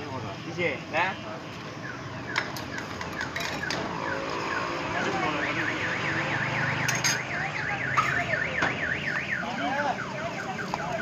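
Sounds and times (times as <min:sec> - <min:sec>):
street noise: 0:00.0 - 0:11.0
warbling electronic alarm: 0:01.8 - 0:11.0.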